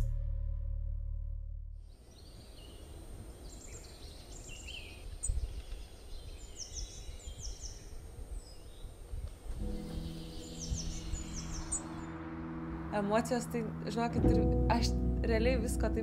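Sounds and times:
low steady rumble: 0.0s - 1.9s, 11.9s - 16.0s
songbirds calling: 1.9s - 12.6s.

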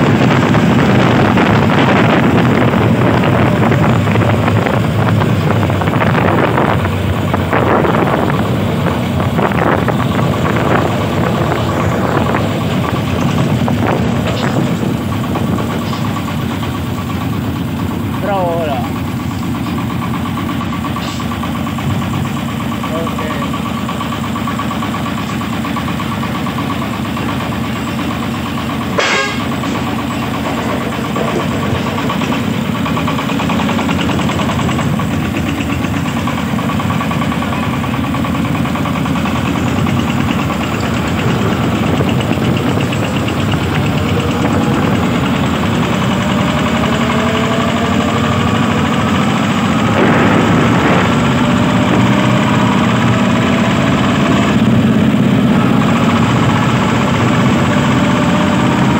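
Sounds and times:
diesel engine running: 0.0s - 58.9s
sharp engine knock: 18.9s - 47.2s, 47.9s - 55.0s.

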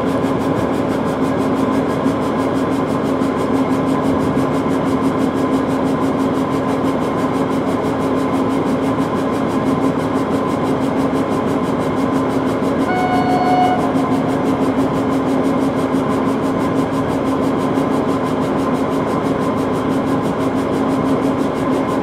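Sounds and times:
diesel train engine humming: 0.0s - 22.0s
train horn blast: 12.8s - 14.2s.

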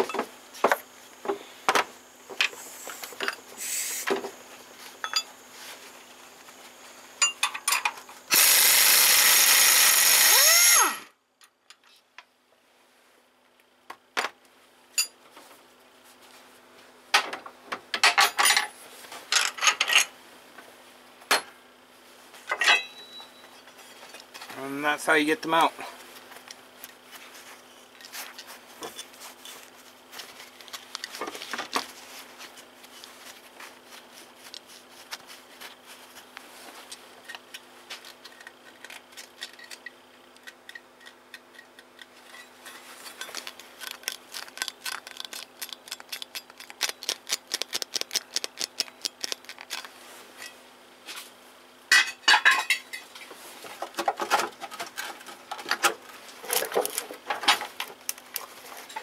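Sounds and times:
metal tools clinking: 5.0s - 5.3s, 7.2s - 8.0s, 22.5s - 23.3s.

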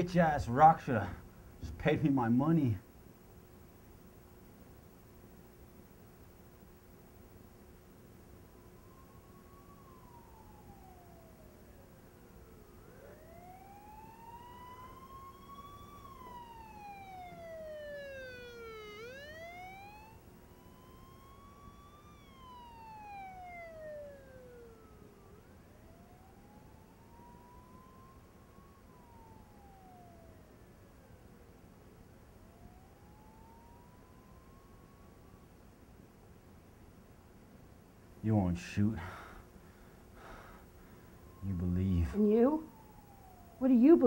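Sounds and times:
police siren wailing: 0.0s - 2.7s, 8.0s - 35.7s, 40.2s - 44.0s
steady low hum: 0.0s - 44.0s
second siren tone: 7.2s - 35.6s, 40.2s - 44.0s.

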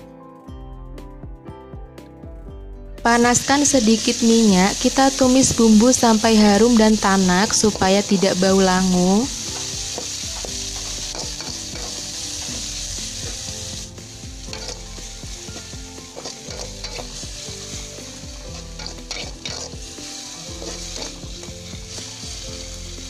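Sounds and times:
paste sizzling in hot oil: 3.2s - 23.0s
metal spatula scraping pan: 16.1s - 17.3s, 18.6s - 19.9s.

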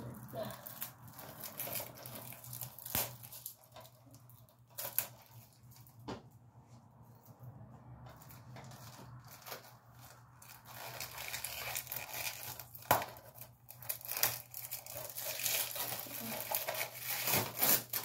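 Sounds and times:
packaging torn and crinkled: 0.3s - 5.9s, 8.3s - 18.0s.

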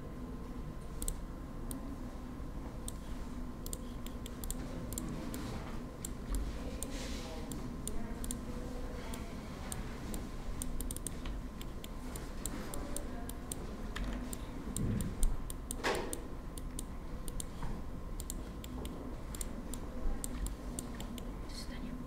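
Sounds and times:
low steady hum: 0.0s - 22.0s
computer mouse and keyboard clicks: 2.8s - 8.4s, 9.1s - 17.6s, 18.2s - 21.3s.

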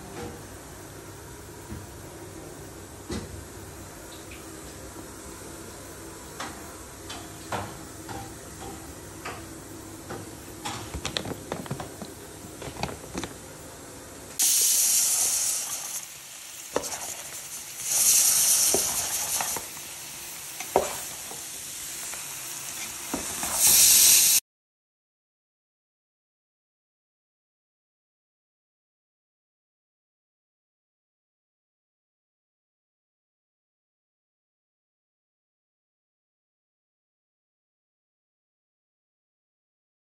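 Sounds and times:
meat sizzling in hot oil: 14.4s - 24.4s.

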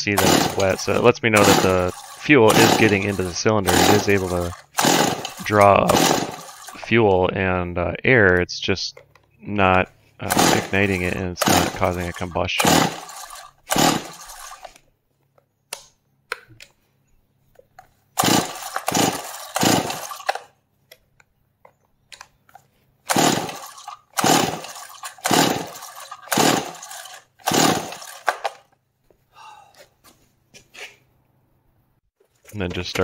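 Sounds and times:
chainsaw engine cranking: 0.0s - 7.0s, 9.7s - 14.8s, 18.2s - 20.5s, 23.0s - 28.8s
chainsaw starter rope rasping: 0.0s - 7.0s, 9.6s - 14.8s, 18.2s - 20.5s, 23.0s - 28.7s.

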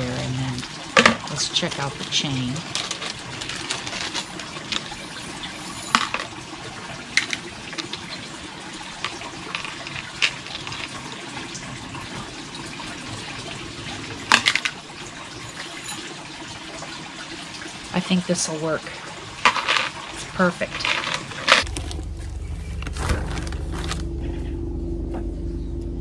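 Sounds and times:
metal chain clinking and rattling: 2.0s - 6.4s, 14.3s - 16.2s, 20.7s - 22.0s.

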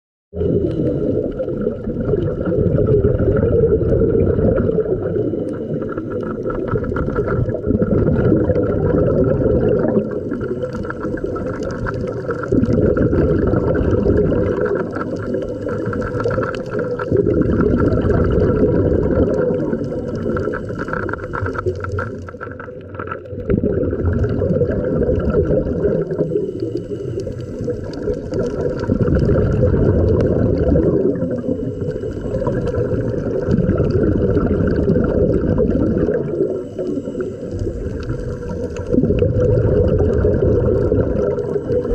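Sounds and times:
exhaled air bubbling underwater: 0.3s - 41.9s
regulator breath hiss: 26.3s - 27.9s, 36.4s - 38.9s.

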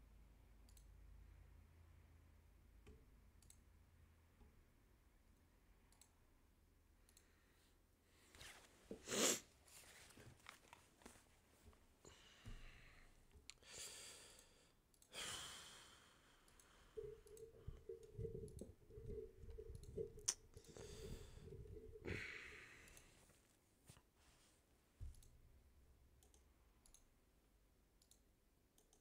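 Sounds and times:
faint clicks: 0.6s - 0.9s, 2.8s - 3.6s, 5.4s - 6.2s, 26.2s - 27.1s, 28.0s - 28.2s, 28.8s - 29.0s
person breathing and sighing: 12.0s - 23.3s
faint broken hum: 14.2s - 23.4s.

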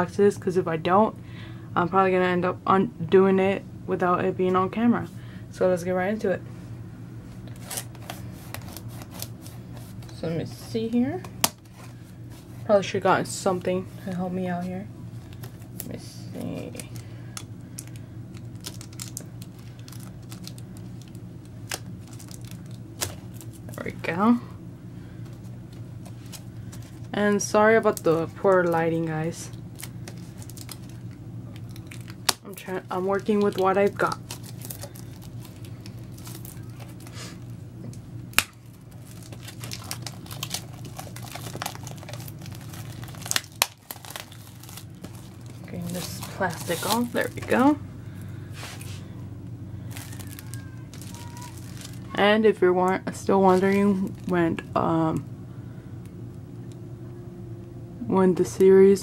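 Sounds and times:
low hum: 0.0s - 59.0s
fingernails scratching plastic wrap: 7.5s - 10.1s, 38.9s - 47.6s, 49.9s - 52.1s
plastic wrap crinkling and tearing: 7.5s - 10.1s, 15.2s - 23.9s, 27.8s - 47.8s, 49.8s - 52.2s, 53.5s - 54.4s.

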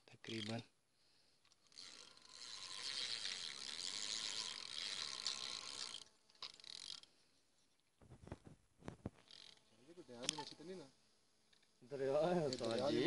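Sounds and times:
fishing reel ratcheting: 0.2s - 0.6s, 1.4s - 7.2s, 9.2s - 10.6s, 11.5s - 13.0s.

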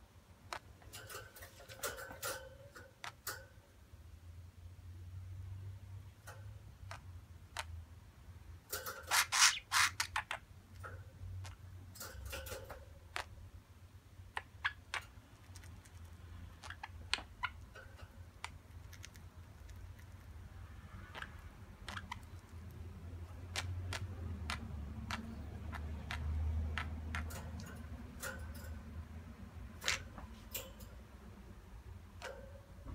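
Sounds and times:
bird beaks clicking on wire cage: 8.7s - 9.5s, 11.9s - 12.9s, 26.1s - 28.8s.

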